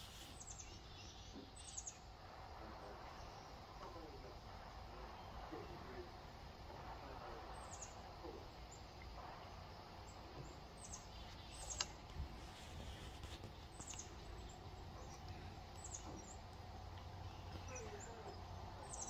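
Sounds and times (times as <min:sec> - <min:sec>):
low outdoor rumble: 0:00.0 - 0:19.0
high bird chirps: 0:07.5 - 0:12.0, 0:13.5 - 0:16.5, 0:17.2 - 0:19.0.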